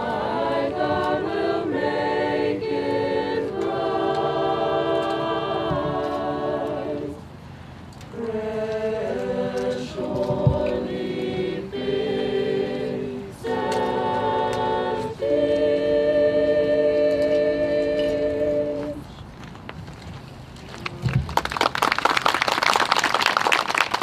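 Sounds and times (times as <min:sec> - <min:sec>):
choir singing a cappella: 0:00.0 - 0:07.3, 0:08.1 - 0:19.2.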